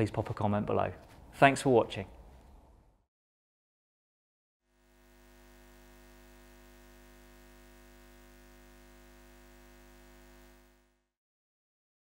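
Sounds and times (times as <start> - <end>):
faint steady hum: 4.7 - 11.1.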